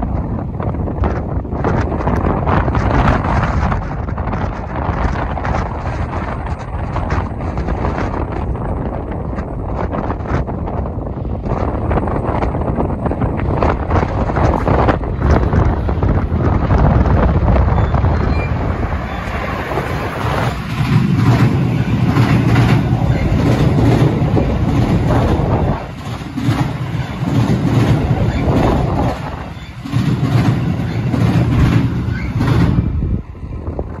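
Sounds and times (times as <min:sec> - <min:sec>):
train rumbling over bridge: 0:00.0 - 0:34.0
wheels clattering over rail joints: 0:11.4 - 0:33.2.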